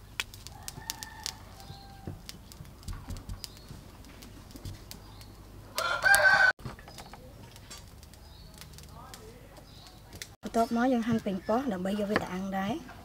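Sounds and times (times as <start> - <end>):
skewers crunching through shallots: 0.0 - 12.5.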